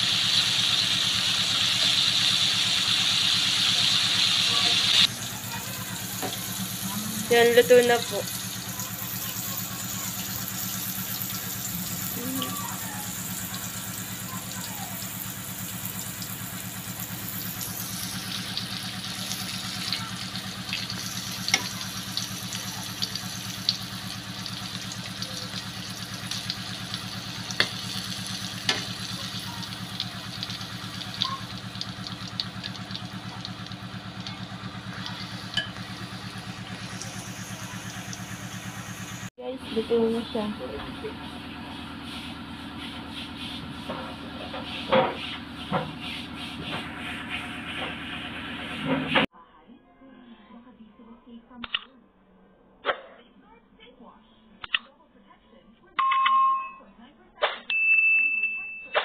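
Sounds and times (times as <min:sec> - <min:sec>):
food deep-frying in oil: 0:00.0 - 0:40.5
low motor hum: 0:00.0 - 0:49.3.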